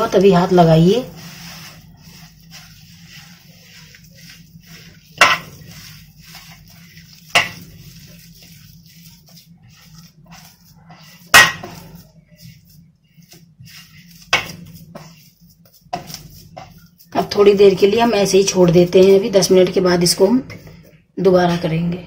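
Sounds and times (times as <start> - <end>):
dough rubbing against metal bowl: 0.0 - 21.9
sharp clanks on metal bowl: 5.2 - 5.5, 7.4 - 7.6, 11.3 - 11.8.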